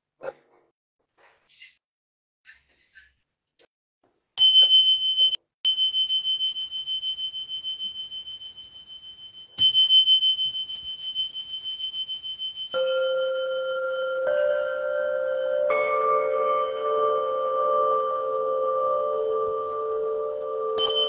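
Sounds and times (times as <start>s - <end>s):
high bell-like tone ringing: 4.4s - 21.0s
deep singing bowl: 9.6s - 21.0s.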